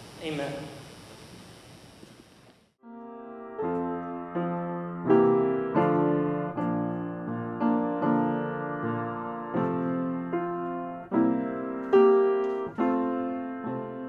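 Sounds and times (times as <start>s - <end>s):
slow piano chords: 2.8s - 14.0s.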